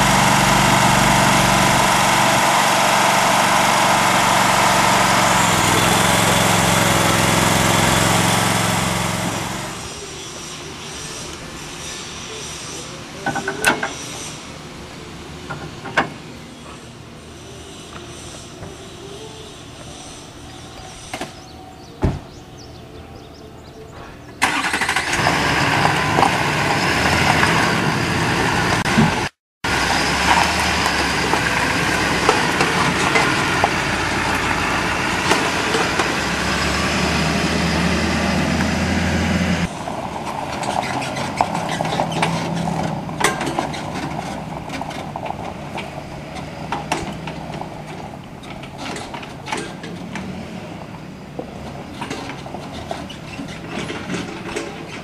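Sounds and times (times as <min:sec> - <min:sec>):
truck engine and tyre noise: 0:00.0 - 0:55.0
rattles and clicks: 0:40.0 - 0:55.0.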